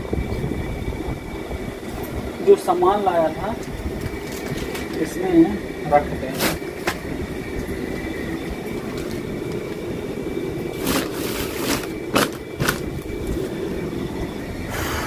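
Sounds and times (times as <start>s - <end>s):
steady background hum: 0.0s - 15.0s
plastic bags rustling: 4.0s - 5.0s, 6.2s - 7.1s, 8.6s - 10.0s, 10.6s - 13.7s.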